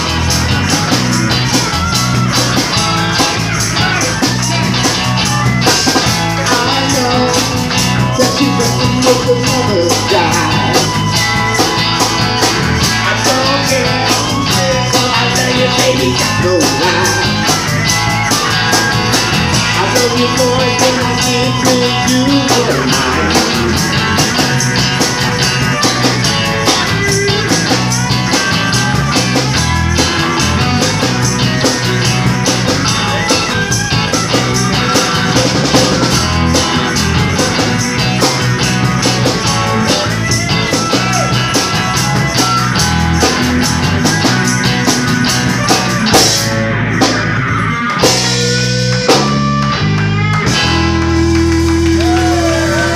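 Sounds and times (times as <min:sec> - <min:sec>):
drum kit with cymbals: 0:00.0 - 0:49.4
electric bass: 0:00.0 - 0:52.9
electric guitar lead: 0:00.0 - 0:52.9.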